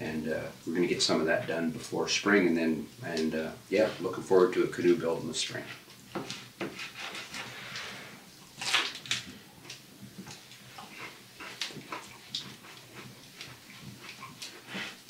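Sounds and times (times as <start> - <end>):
fried bread crackling: 2.8 - 15.0
person chewing: 8.5 - 15.0.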